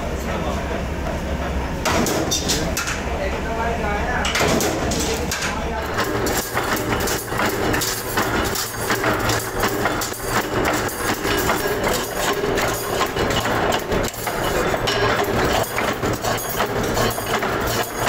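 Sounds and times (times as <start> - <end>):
machinery hum: 0.0 - 18.0
metal knocks and clicks: 4.3 - 18.0.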